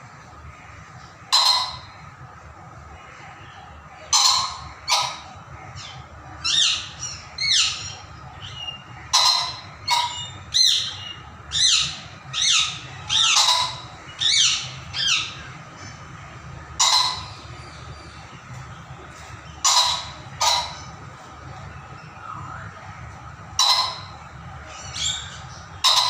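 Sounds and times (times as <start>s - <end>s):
pheasant squawking: 1.3s - 2.0s, 4.1s - 15.5s, 16.8s - 17.5s, 19.6s - 21.0s, 23.6s - 26.0s.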